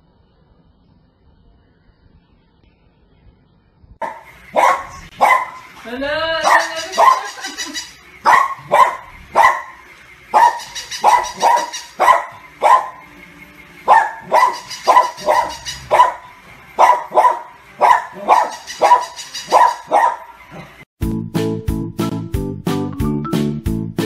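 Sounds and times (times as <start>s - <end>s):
small dog barking: 4.0s - 5.8s, 6.4s - 13.1s, 13.8s - 20.8s.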